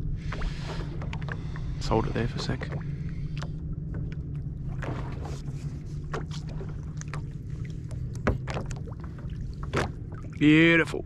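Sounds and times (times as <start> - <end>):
boat engine low hum: 0.0 - 11.0.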